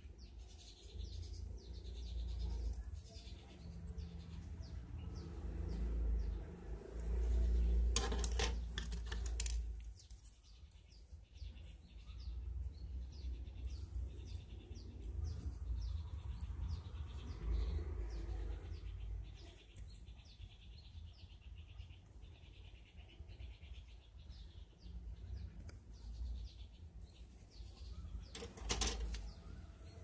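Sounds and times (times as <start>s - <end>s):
small bird chirping: 0.0s - 30.0s
plastic parts being handled: 7.9s - 10.3s, 28.3s - 29.3s.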